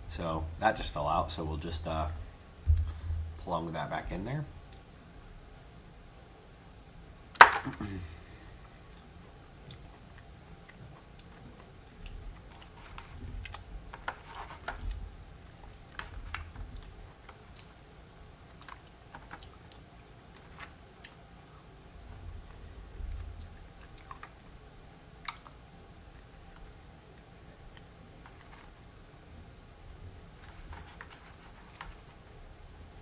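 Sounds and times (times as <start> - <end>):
person chewing: 16.8 - 17.8.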